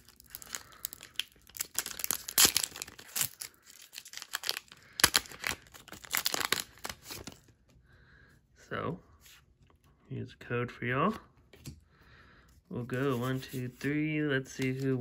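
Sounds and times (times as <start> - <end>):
foil wrapper tearing and crinkling: 0.0 - 7.5.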